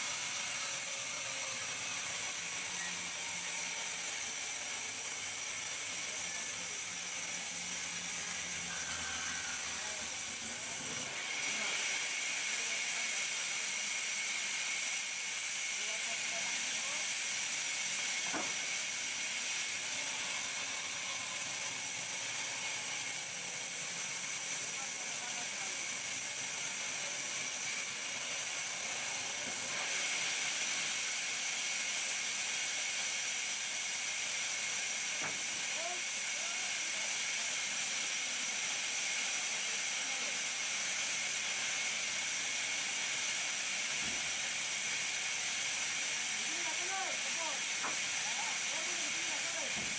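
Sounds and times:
band saw hissing and whining: 0:00.0 - 0:49.9.

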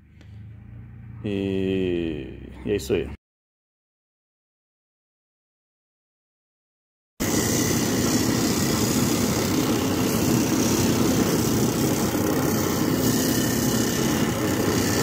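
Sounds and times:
drum sander motor hum: 0:07.2 - 0:15.0.

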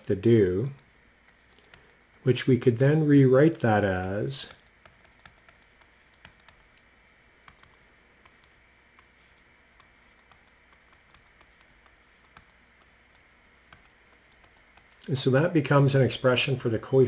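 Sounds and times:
stylus tapping on tablet: 0:04.5 - 0:15.1.

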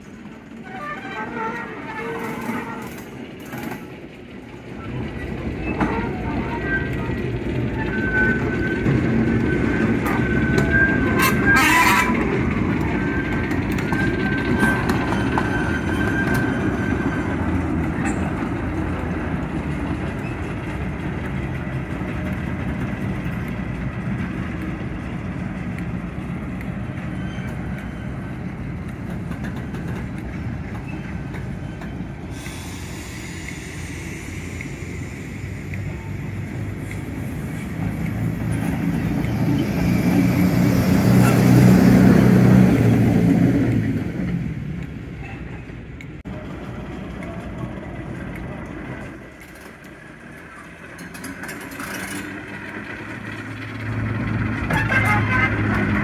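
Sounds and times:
wagon wheels running on rails: 0:00.0 - 0:32.4, 0:46.3 - 0:56.0
diesel locomotive rumble: 0:00.0 - 0:56.0.

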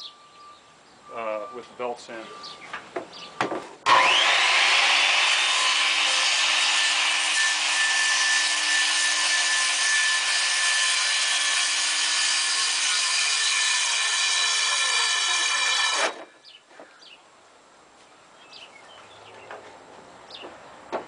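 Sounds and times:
circular saw cutting plywood: 0:03.8 - 0:16.4.

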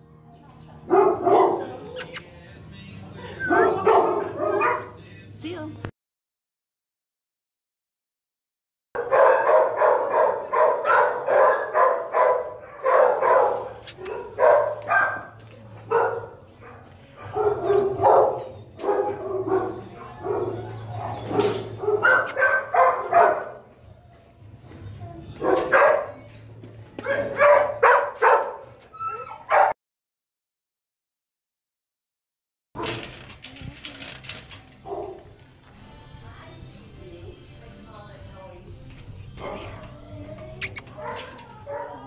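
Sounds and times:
dog barking: 0:00.9 - 0:01.8, 0:03.4 - 0:05.0, 0:09.0 - 0:23.6, 0:25.4 - 0:26.3, 0:27.0 - 0:29.8, 0:34.8 - 0:35.2, 0:40.9 - 0:42.0.

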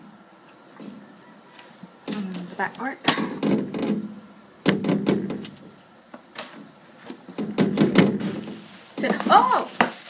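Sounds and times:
box knocked and rubbed: 0:07.3 - 0:10.0.

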